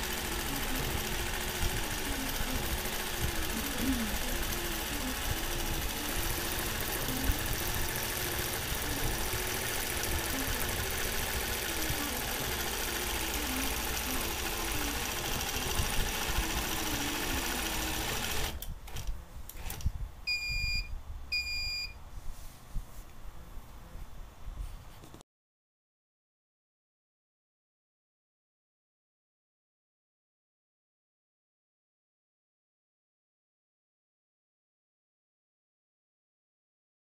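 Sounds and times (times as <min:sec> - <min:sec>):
quilting machine motor stitching: 0:00.0 - 0:19.9
short electronic beeps: 0:20.3 - 0:22.0.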